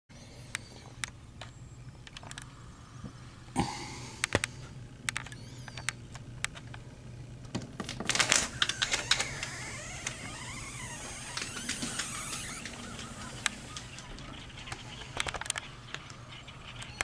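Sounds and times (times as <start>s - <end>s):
curtain rustling: 8.1s - 14.6s
sliding glass door clicking and scraping: 8.3s - 15.1s.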